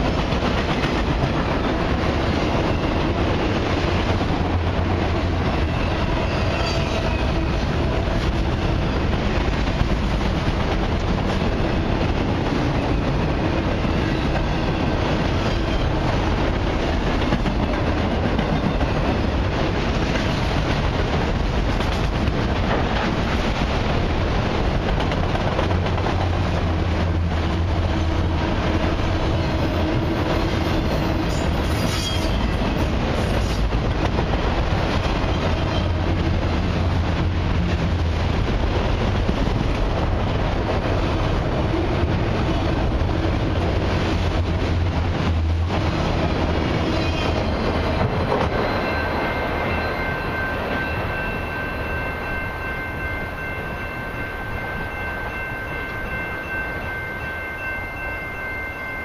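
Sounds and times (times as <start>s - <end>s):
train wheels clickety-clack: 0.0s - 52.6s
high wheel squeal: 30.9s - 32.5s.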